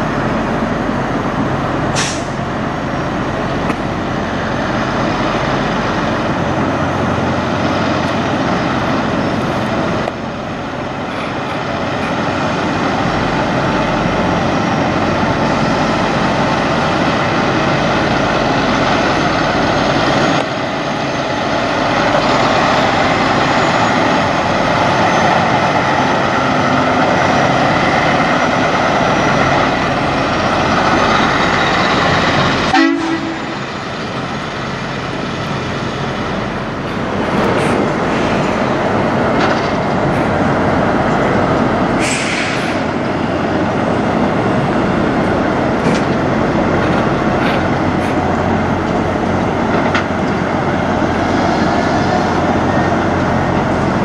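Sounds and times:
truck diesel engine running: 0.0s - 54.0s.

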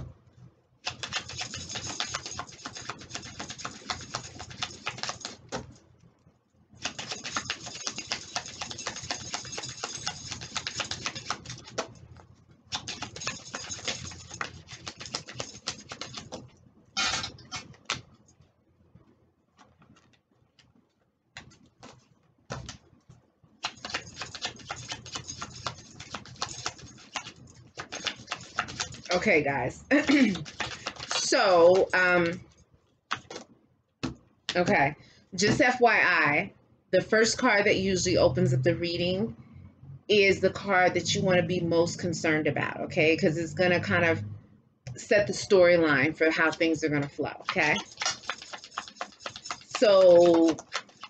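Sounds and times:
cards being shuffled: 0.9s - 5.7s, 6.8s - 12.0s, 12.7s - 18.2s, 19.6s - 20.8s, 21.4s - 23.0s, 23.6s - 29.2s, 29.9s - 32.3s, 33.1s - 34.2s, 47.4s - 51.0s.

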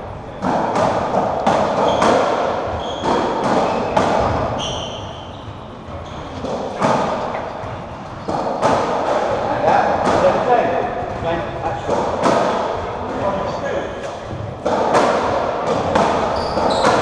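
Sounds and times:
ball hitting rackets and walls: 0.3s - 17.0s
shoes squeaking on wooden floor: 1.4s - 8.8s, 15.7s - 17.0s.

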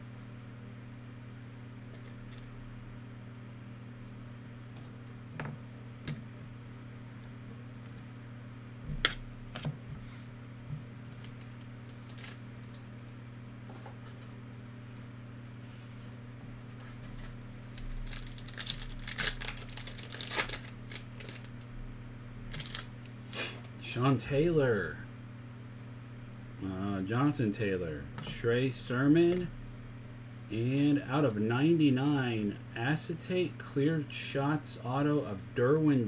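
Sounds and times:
steady low hum: 0.0s - 36.0s
wrapper tearing and crinkling: 11.2s - 12.8s, 17.2s - 21.7s, 22.5s - 23.2s.

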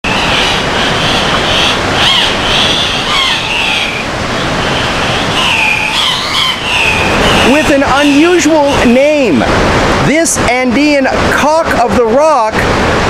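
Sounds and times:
river water rushing: 0.0s - 13.0s
short high wavering calls: 0.1s - 8.9s.

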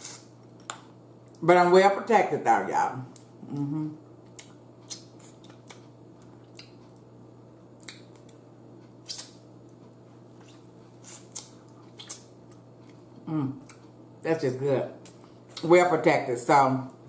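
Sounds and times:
steady low hum: 0.0s - 17.0s
lip smacks: 4.3s - 5.8s, 7.8s - 8.4s, 9.0s - 9.4s, 10.4s - 12.6s.

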